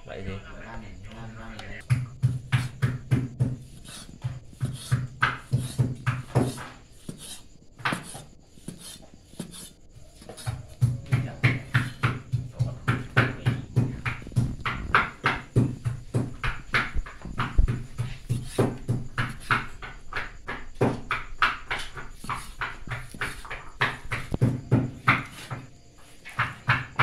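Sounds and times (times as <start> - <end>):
knife chopping on wooden board: 1.8 - 27.0.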